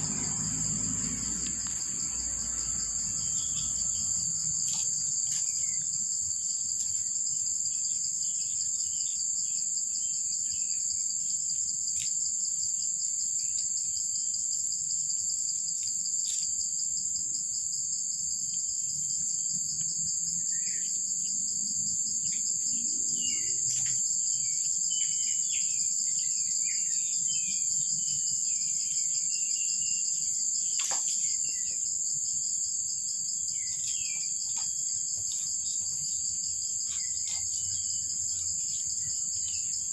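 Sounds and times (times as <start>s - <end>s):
insect chorus drone: 0.0s - 39.9s.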